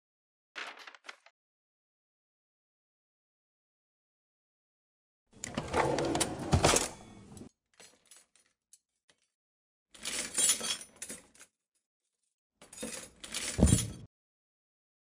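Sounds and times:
drawer sliding open: 0:05.4 - 0:07.5.

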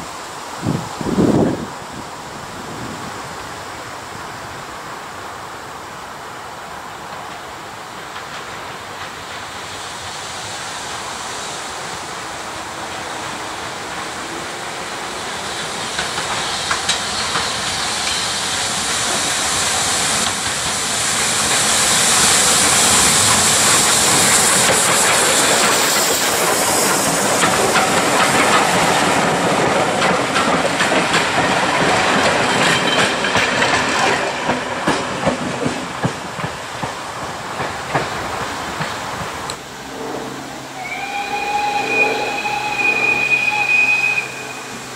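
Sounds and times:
steam locomotive hissing: 0:00.0 - 0:44.9
train wheels clicking over rail joints: 0:06.9 - 0:39.6.

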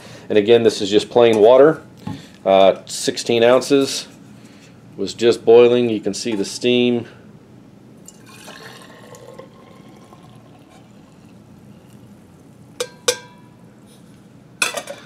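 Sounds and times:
water pouring into jar: 0:08.1 - 0:12.0.

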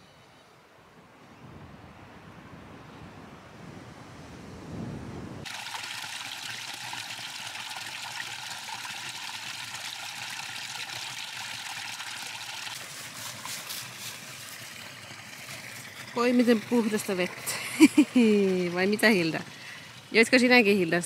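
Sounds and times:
wind rumbling on microphone: 0:00.8 - 0:05.5
water trickling and splashing: 0:05.4 - 0:21.0.

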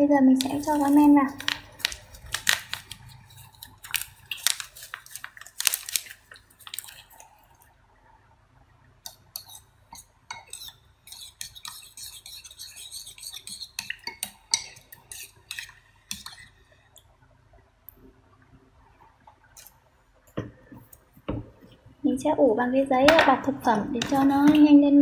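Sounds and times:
sachet rustling: 0:00.4 - 0:07.2.

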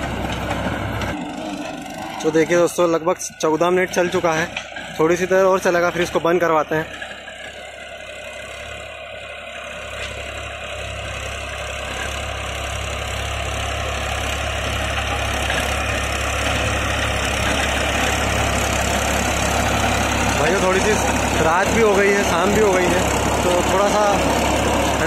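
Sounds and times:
tractor diesel engine running: 0:00.0 - 0:25.0
rotavator churning soil: 0:11.8 - 0:25.0.

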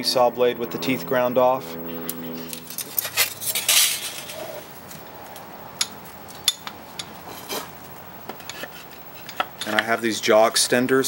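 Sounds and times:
metal tools clinking: 0:02.0 - 0:04.7, 0:08.4 - 0:10.0
sliding scrape: 0:02.4 - 0:04.6, 0:07.2 - 0:07.8.

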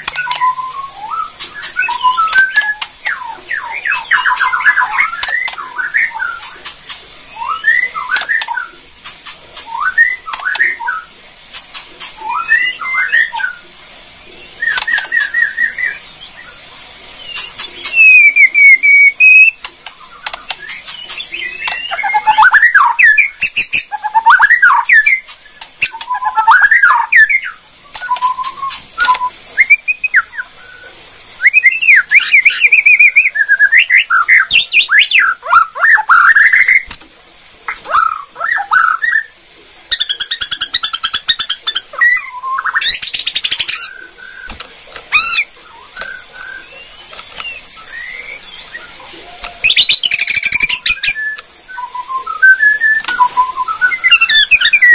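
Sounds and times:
bird singing whistled phrases: 0:00.0 - 0:06.7, 0:07.3 - 0:08.7, 0:09.6 - 0:11.1, 0:12.2 - 0:13.6, 0:14.4 - 0:16.6, 0:17.2 - 0:36.9, 0:37.9 - 0:39.3, 0:39.9 - 0:44.5, 0:45.1 - 0:54.9
fast bird trill: 0:00.0 - 0:13.6, 0:17.2 - 0:30.5, 0:39.9 - 0:44.5, 0:45.1 - 0:48.9, 0:49.6 - 0:54.9
sharp dry bird clicks: 0:01.4 - 0:03.1, 0:19.2 - 0:22.0.

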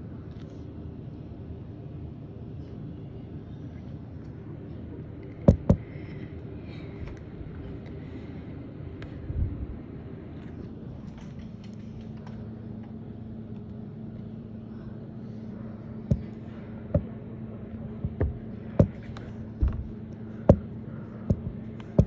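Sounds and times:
steady low hum: 0:00.0 - 0:22.0
sharp knocks: 0:05.5 - 0:05.8, 0:16.9 - 0:17.1, 0:18.0 - 0:19.9, 0:20.5 - 0:20.7, 0:21.3 - 0:22.0.

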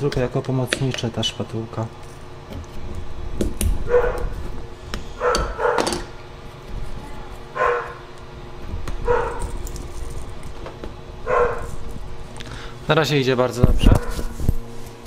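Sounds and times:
dog barking: 0:03.9 - 0:04.3, 0:05.2 - 0:05.9, 0:07.6 - 0:08.0, 0:09.0 - 0:09.5, 0:11.2 - 0:11.7.

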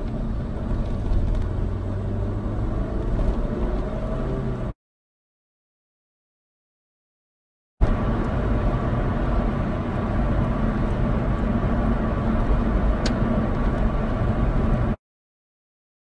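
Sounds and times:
car road and engine noise: 0:00.0 - 0:04.8, 0:07.8 - 0:15.0.

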